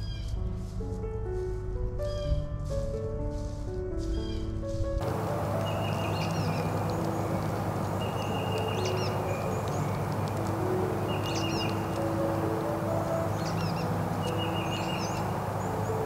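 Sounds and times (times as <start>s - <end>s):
soft held background music: 0.0s - 16.0s
steady outdoor hiss: 0.0s - 16.0s
bird calling with chirps: 5.0s - 16.0s.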